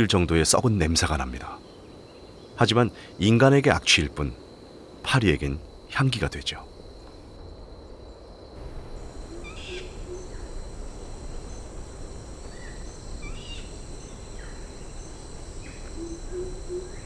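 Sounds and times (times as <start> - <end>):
high insect drone: 0.0 - 17.0
bird chirps: 9.1 - 17.0
low hoot: 9.2 - 10.6, 12.4 - 17.0.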